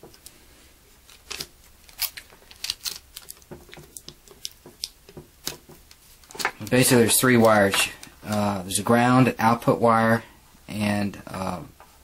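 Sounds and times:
plastic tape crinkling: 0:01.0 - 0:08.6.

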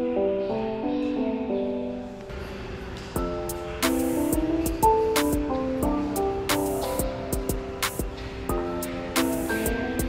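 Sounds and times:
background music with a beat: 0:02.9 - 0:10.0.

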